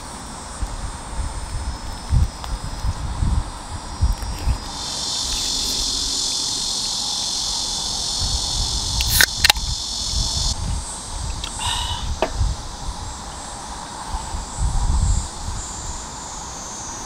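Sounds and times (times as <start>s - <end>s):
insects chirping: 0.0s - 17.0s
sharp clicks: 9.0s - 9.7s.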